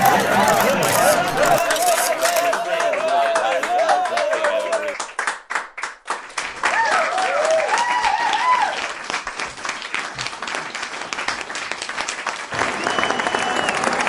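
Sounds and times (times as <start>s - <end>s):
people shouting: 0.0s - 5.0s
people clapping fast: 0.0s - 14.0s.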